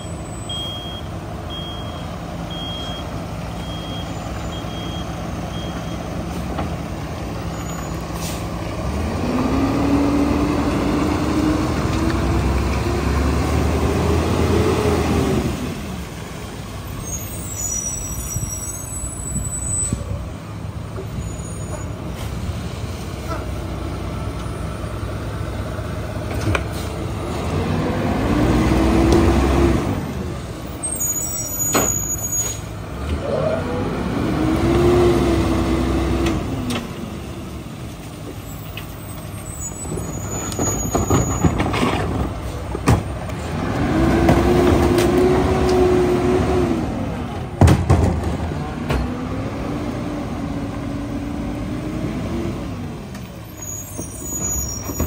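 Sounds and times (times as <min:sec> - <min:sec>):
garbage truck engine revving: 0:08.2 - 0:16.1, 0:26.7 - 0:30.3, 0:40.2 - 0:53.0.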